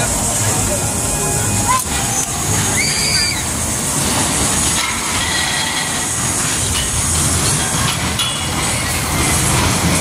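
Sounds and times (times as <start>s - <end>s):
roller coaster wheels rumbling: 0.0s - 10.0s
high wheel squeals: 1.1s - 3.7s.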